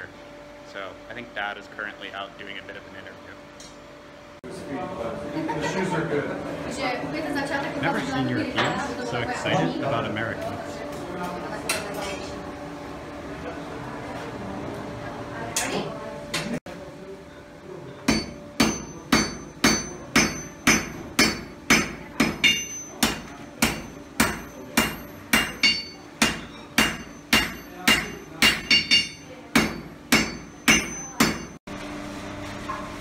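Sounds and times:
hammer striking iron on anvil: 0:18.1 - 0:31.6.

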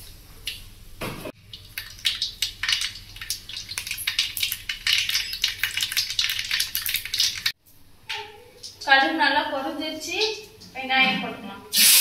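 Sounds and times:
seeds sizzling and popping in oil: 0:01.4 - 0:07.6.

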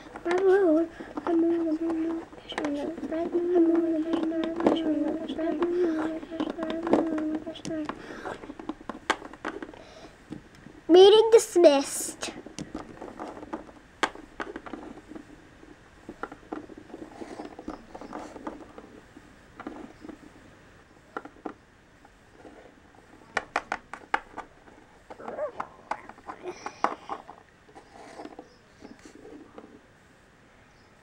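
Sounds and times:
plastic figurines tapping and clicking: 0:00.0 - 0:10.7, 0:23.3 - 0:27.4.

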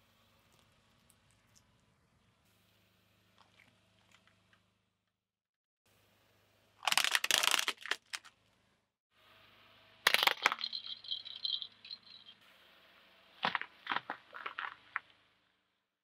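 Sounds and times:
tyre crushing brittle objects: 0:06.8 - 0:08.3, 0:13.4 - 0:15.0.

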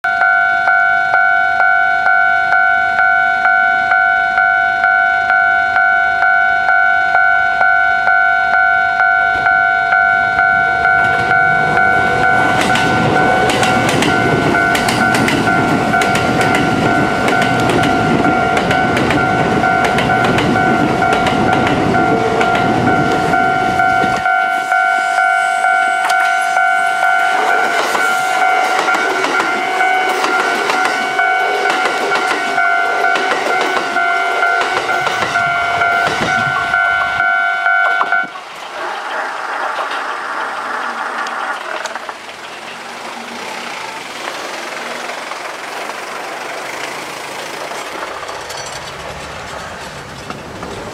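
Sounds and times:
level crossing warning bell: 0:00.0 - 0:38.6
train rumbling over rails: 0:00.1 - 0:50.9.

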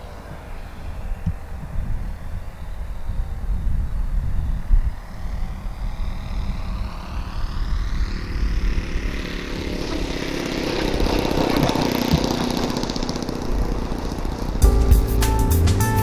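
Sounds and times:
model airplane engine: 0:00.0 - 0:14.6.

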